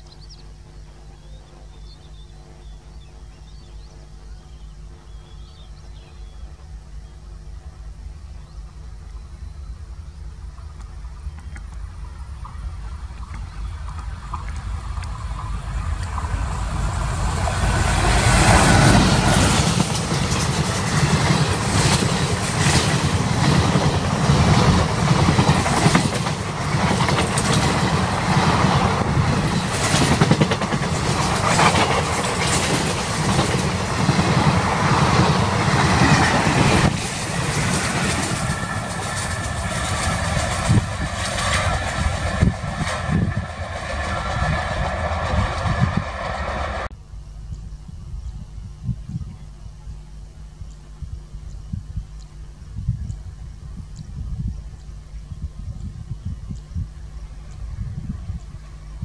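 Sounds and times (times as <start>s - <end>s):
distant train running: 0.0s - 47.5s
train wheels clattering on rails: 12.4s - 46.9s.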